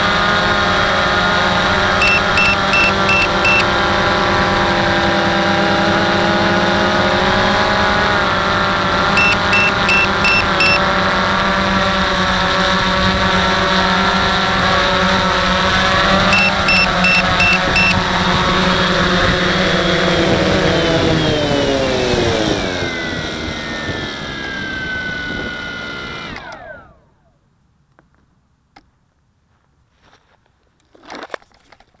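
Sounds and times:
high electronic beeps: 0:02.0 - 0:03.7, 0:09.2 - 0:10.8, 0:16.3 - 0:18.0.

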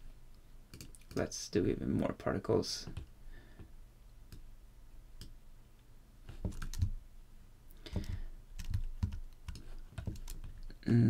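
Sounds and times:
faint low hum: 0:00.0 - 0:11.0
computer keyboard clicks: 0:06.5 - 0:07.0, 0:07.9 - 0:10.7.

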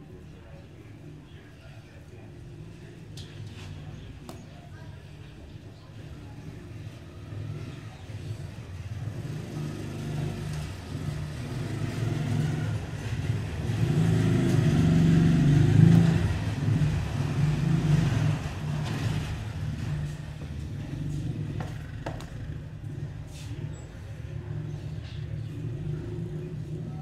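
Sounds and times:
vehicle engine passing: 0:06.7 - 0:27.0.

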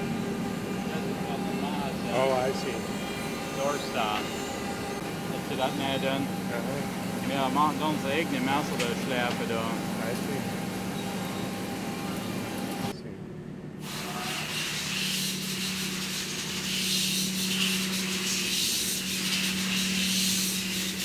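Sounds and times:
machinery humming: 0:00.0 - 0:21.0
hiss from machinery: 0:13.8 - 0:21.0.

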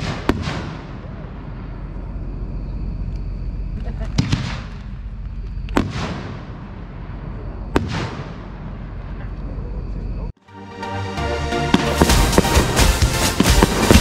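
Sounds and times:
firework shell reports with echo: 0:11.7 - 0:14.0.

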